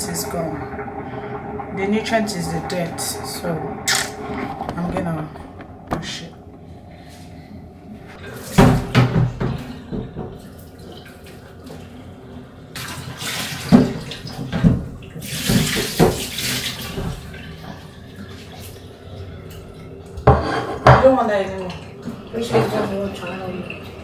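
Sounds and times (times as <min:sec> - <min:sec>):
water running into a steel sink: 0:00.0 - 0:05.2, 0:12.7 - 0:20.4.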